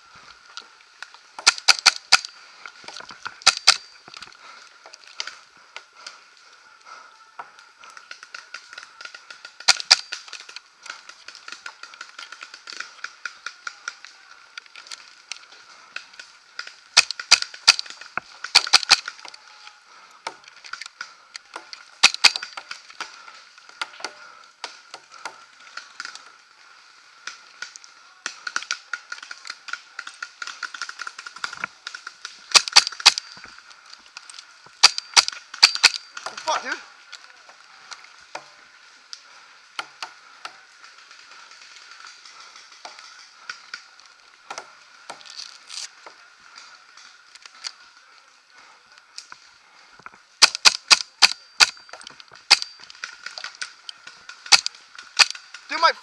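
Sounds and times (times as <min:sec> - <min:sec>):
paintball marker firing bursts: 0:01.4 - 0:02.3, 0:08.1 - 0:13.6, 0:16.6 - 0:19.2, 0:22.0 - 0:22.8, 0:29.8 - 0:33.3, 0:34.8 - 0:36.8, 0:50.4 - 0:52.8, 0:54.4 - 0:55.5.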